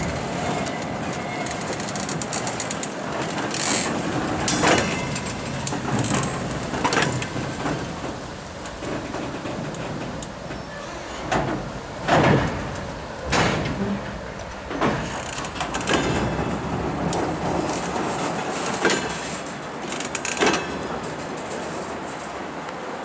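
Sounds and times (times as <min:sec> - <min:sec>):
train cars rumbling past: 0:00.0 - 0:23.0
metallic clanks from couplings: 0:03.2 - 0:07.8, 0:11.2 - 0:17.3.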